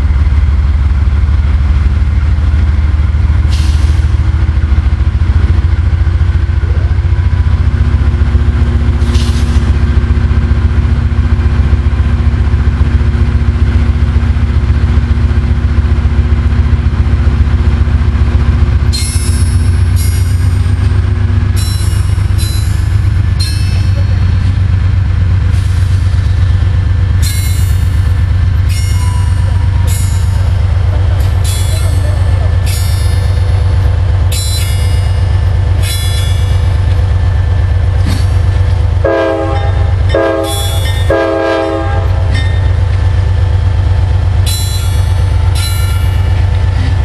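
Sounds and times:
locomotive engine idling: 0.0 - 47.0
air hissing: 3.5 - 4.1, 9.0 - 9.7.

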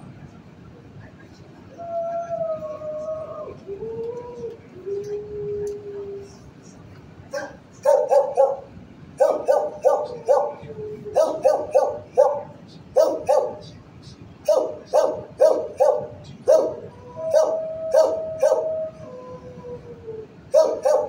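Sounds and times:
dog howling: 1.8 - 6.4, 9.2 - 13.6, 14.5 - 21.0
dogs barking: 7.3 - 13.7, 14.4 - 18.8, 20.5 - 21.0.

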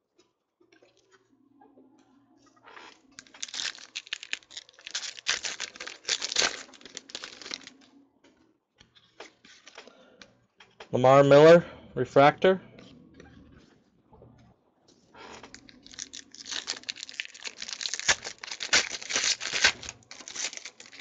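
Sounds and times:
foil wrapper crackling: 3.1 - 7.9, 15.5 - 21.0
cards clicking and rustling: 3.2 - 7.8, 9.2 - 9.9, 15.4 - 21.0.

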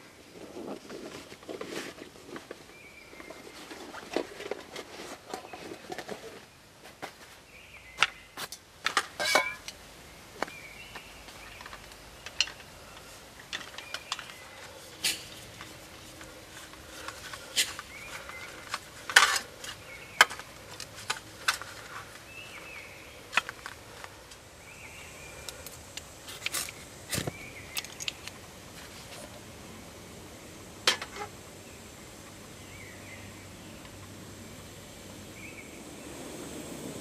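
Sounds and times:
metal mug set on burner: 9.2 - 9.7
clicks of camping stove gear: 11.5 - 14.4, 15.0 - 22.2, 25.4 - 28.4, 30.8 - 31.3.

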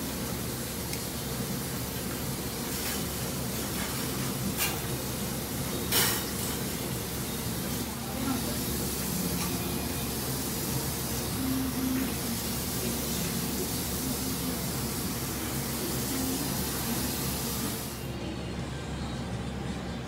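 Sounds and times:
hissing kitchen noise: 0.0 - 20.0.

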